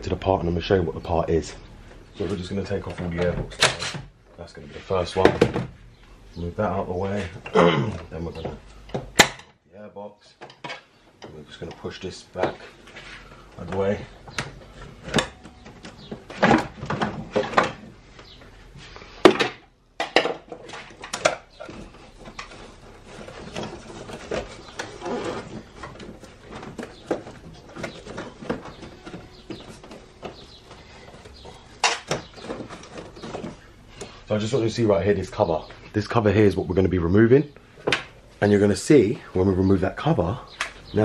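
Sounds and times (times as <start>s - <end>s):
plastic parts clicking and knocking: 7.3s - 9.6s, 10.4s - 12.7s, 13.3s - 18.4s, 19.2s - 34.2s
rubbing and rustling: 10.8s - 19.4s, 20.4s - 35.9s.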